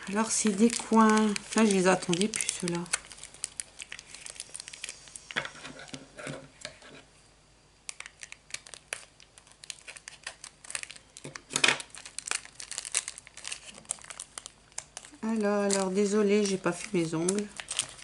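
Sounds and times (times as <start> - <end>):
plastic packet crinkling: 0.0 - 5.3, 7.9 - 18.0.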